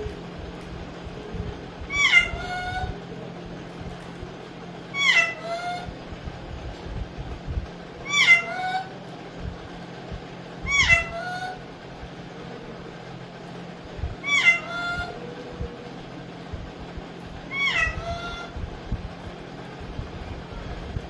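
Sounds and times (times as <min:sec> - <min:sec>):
parakeet talking: 0:01.8 - 0:03.2, 0:04.8 - 0:06.0, 0:08.0 - 0:09.0, 0:10.6 - 0:11.7, 0:14.2 - 0:15.3, 0:17.4 - 0:18.6.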